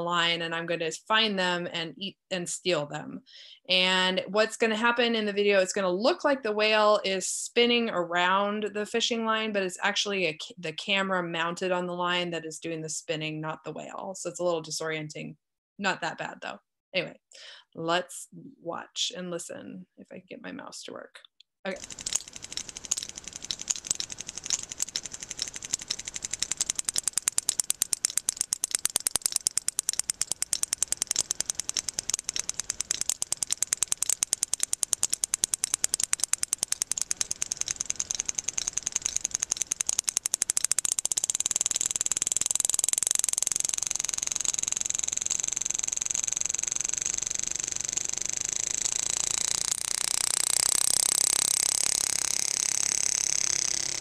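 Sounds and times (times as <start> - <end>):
whale echolocation clicks: 21.8 - 54.0.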